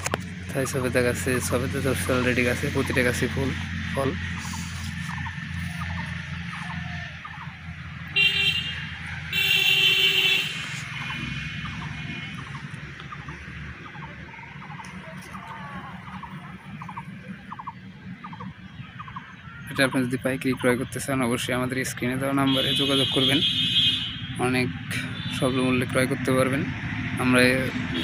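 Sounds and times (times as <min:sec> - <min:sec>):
vehicle horn honking: 0:08.1 - 0:11.4, 0:22.4 - 0:25.6.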